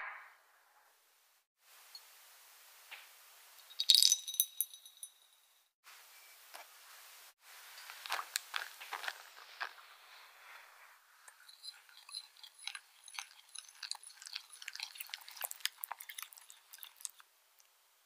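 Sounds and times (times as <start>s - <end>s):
wet batter mixing: 11.1s - 17.8s
whisk clicking against glass bowl: 11.4s - 16.0s.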